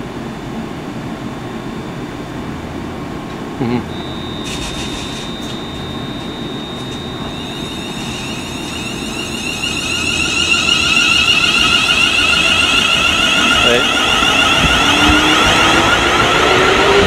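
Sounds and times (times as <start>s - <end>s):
train running rumble: 2.2s - 17.0s
electric motor whine: 3.9s - 17.0s.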